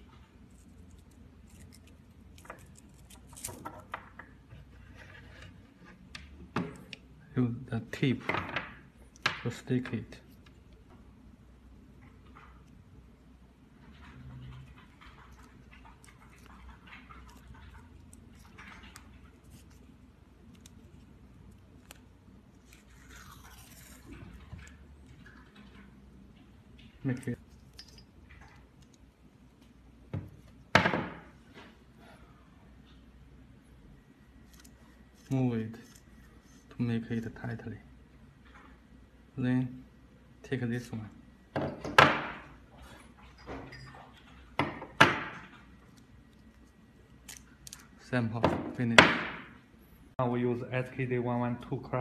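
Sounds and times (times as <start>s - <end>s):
paper and tape crackling: 0.4s - 3.7s.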